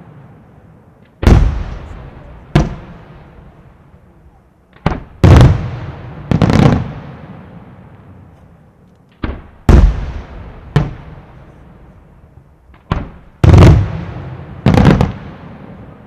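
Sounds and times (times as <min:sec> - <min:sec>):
firework shells booming: 0:01.2 - 0:03.6, 0:04.8 - 0:07.4, 0:09.2 - 0:11.6, 0:12.7 - 0:15.9
echo of booms: 0:01.2 - 0:03.8, 0:04.7 - 0:07.9, 0:09.2 - 0:12.1, 0:12.7 - 0:16.0.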